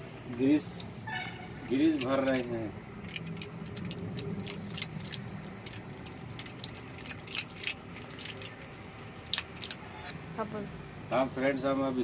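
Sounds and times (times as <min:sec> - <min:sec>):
low steady hum: 0:00.0 - 0:12.0
grease squelching: 0:01.5 - 0:10.1.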